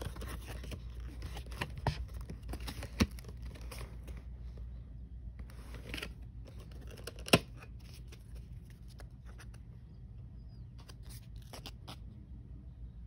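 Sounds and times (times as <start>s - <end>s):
card scraping and rustling: 0.0s - 4.6s, 5.4s - 9.7s.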